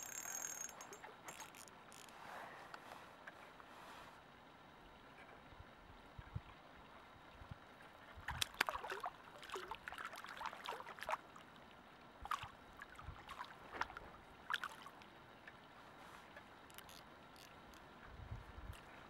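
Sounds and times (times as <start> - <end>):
fish splashing at water surface: 8.3 - 11.3.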